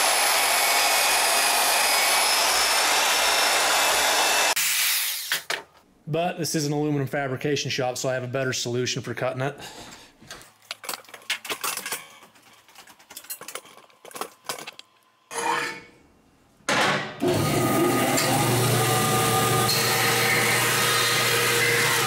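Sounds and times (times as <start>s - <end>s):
bandsaw cutting metal: 0.0s - 5.4s, 17.2s - 22.0s
handling clicks and knocks: 10.3s - 15.0s.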